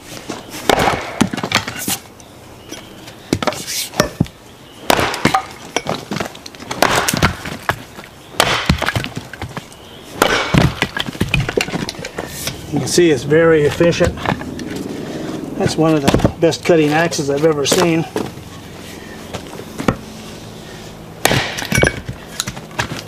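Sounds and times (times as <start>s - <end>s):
axe chopping wood: 0.6s - 2.0s, 3.3s - 12.6s, 15.6s - 16.5s, 17.6s - 18.3s, 19.8s - 20.0s, 21.2s - 23.0s
wood cracking and splitting: 0.7s - 1.9s, 4.9s - 14.8s, 21.2s - 23.0s.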